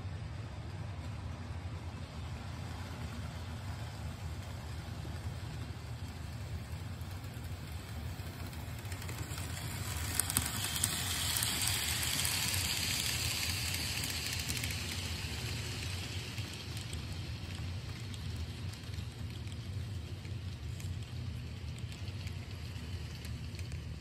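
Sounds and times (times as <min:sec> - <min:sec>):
model train rumbling on rails: 0:00.0 - 0:24.0.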